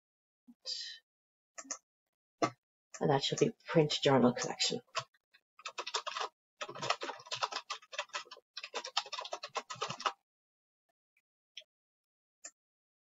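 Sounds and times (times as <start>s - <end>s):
rapid typing on keyboard: 4.4s - 10.2s.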